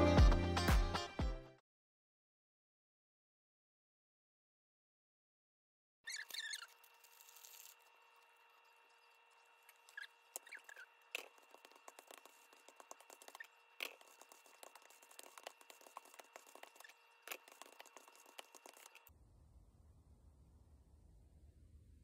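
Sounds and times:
faint steady hum: 0:06.6 - 0:22.0.

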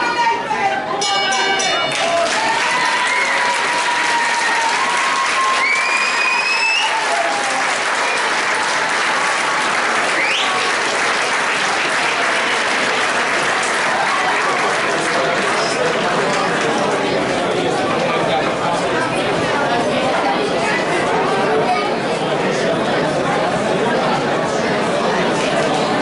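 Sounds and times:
audience applauding: 0:01.6 - 0:17.8.

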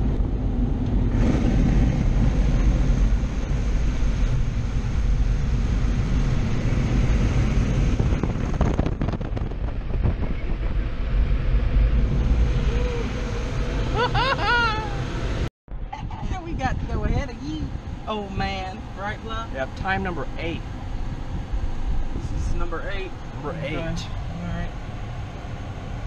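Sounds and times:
car wash water sprays and dryers: 0:00.0 - 0:09.2
gusty buffeting: 0:00.0 - 0:26.0.

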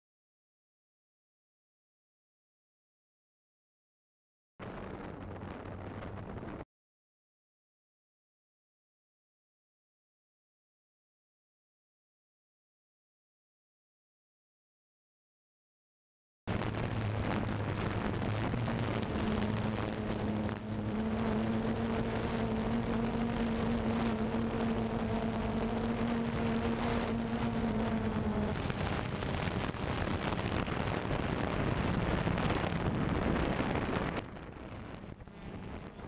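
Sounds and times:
wind rushing over microphone: 0:04.6 - 0:06.7, 0:16.5 - 0:36.0
drone propellers humming: 0:16.5 - 0:36.0.

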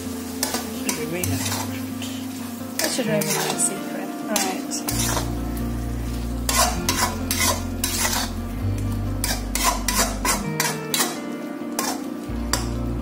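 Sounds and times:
curry sizzling: 0:00.0 - 0:13.0
spatula scraping metal pan: 0:00.4 - 0:02.2, 0:02.8 - 0:05.4, 0:06.4 - 0:08.4, 0:09.2 - 0:11.2, 0:11.8 - 0:12.6.

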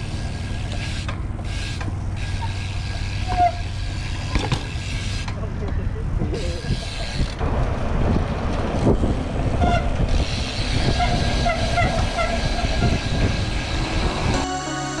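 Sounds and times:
bike tyres rolling on concrete: 0:00.0 - 0:14.4
wind buffeting microphone: 0:05.5 - 0:14.4.

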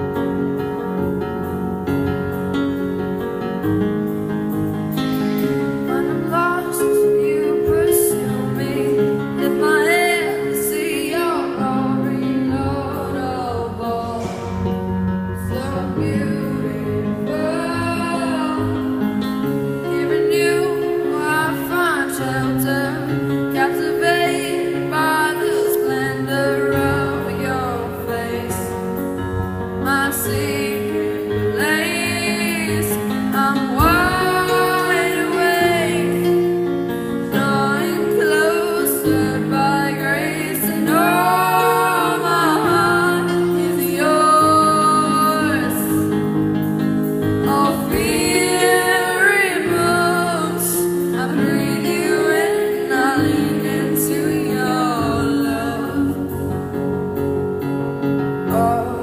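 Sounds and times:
woman singing slow song: 0:05.9 - 0:14.6, 0:15.4 - 0:18.8, 0:19.8 - 0:28.8, 0:29.8 - 0:36.4, 0:37.4 - 0:46.1, 0:47.4 - 0:56.6, 0:58.5 - 0:59.0.

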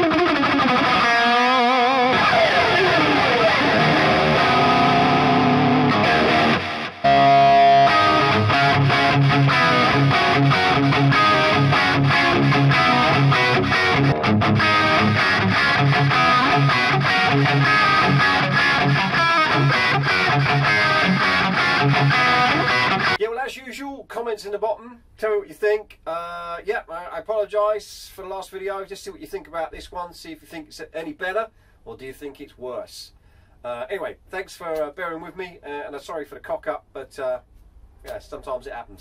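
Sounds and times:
distorted electric guitar riff: 0:00.0 - 0:23.2.

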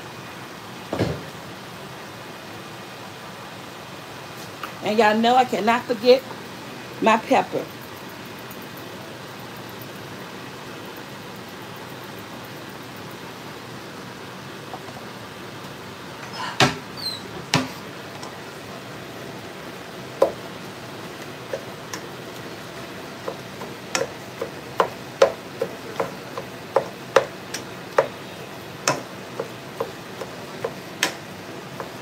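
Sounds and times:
meat sizzling: 0:17.5 - 0:32.0
spatula knocking and scraping pan: 0:21.1 - 0:32.0.

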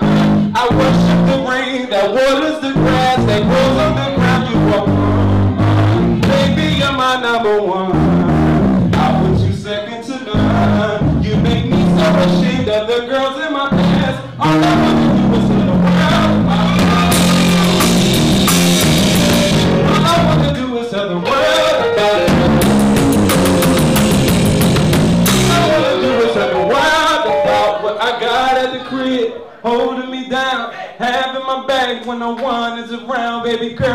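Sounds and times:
bass guitar: 0:00.0 - 0:01.5, 0:02.8 - 0:07.1, 0:07.9 - 0:09.7, 0:10.3 - 0:12.7, 0:13.7 - 0:20.6, 0:21.2 - 0:27.8
man singing: 0:00.0 - 0:18.0, 0:19.3 - 0:24.0, 0:25.2 - 0:33.9
drum kit: 0:14.8 - 0:20.5, 0:22.0 - 0:27.7.

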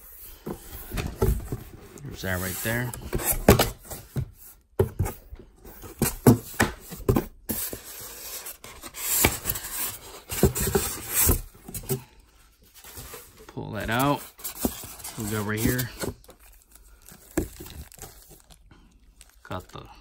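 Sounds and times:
cardboard and foam rubbing: 0:00.0 - 0:05.2, 0:12.6 - 0:18.6.

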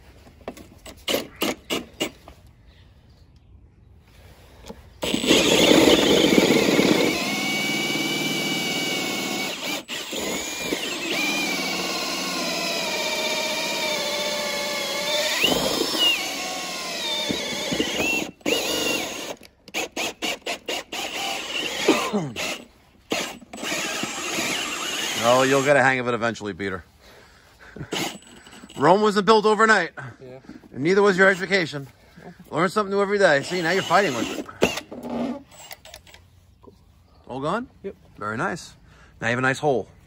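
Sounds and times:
cordless drill whining: 0:00.5 - 0:02.3, 0:04.6 - 0:25.8, 0:27.8 - 0:29.0, 0:31.0 - 0:31.7, 0:33.1 - 0:36.2.

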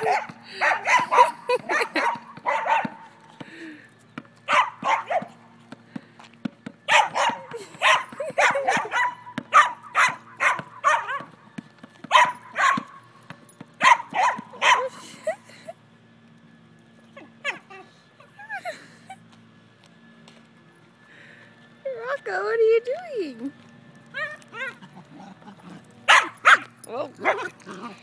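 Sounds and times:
dog barking high yaps: 0:00.0 - 0:03.0, 0:04.5 - 0:05.3, 0:06.9 - 0:11.3, 0:12.1 - 0:13.0, 0:13.8 - 0:14.9, 0:17.4 - 0:17.7, 0:26.1 - 0:27.5
basketball dribbling on asphalt: 0:00.0 - 0:14.9.

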